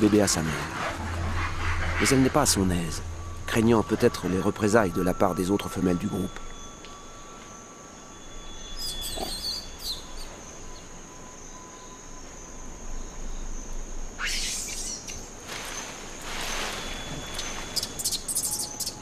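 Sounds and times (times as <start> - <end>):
insect drone: 0.0 - 19.0
bird chirps: 1.4 - 12.4, 14.2 - 19.0.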